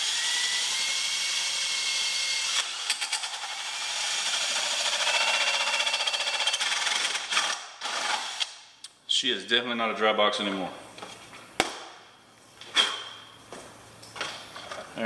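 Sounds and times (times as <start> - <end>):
power drill whining: 0.0 - 8.5.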